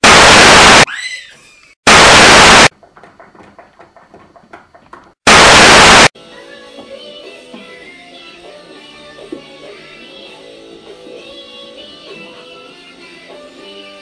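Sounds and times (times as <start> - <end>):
television static hiss: 0.0 - 0.8, 1.9 - 2.7, 5.3 - 6.1
faint music: 6.2 - 14.0.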